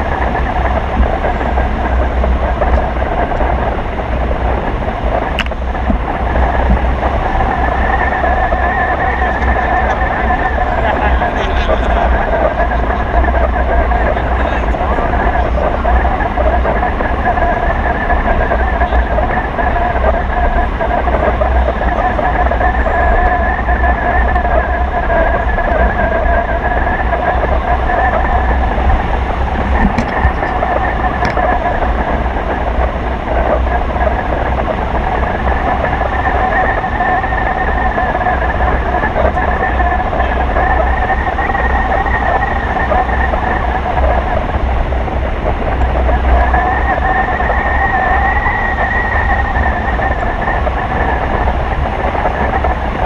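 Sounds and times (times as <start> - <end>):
steady whistling tone: 0.0 - 53.0
wind buffeting microphone: 0.0 - 53.0
steady whistle: 35.0 - 44.5, 45.6 - 52.8.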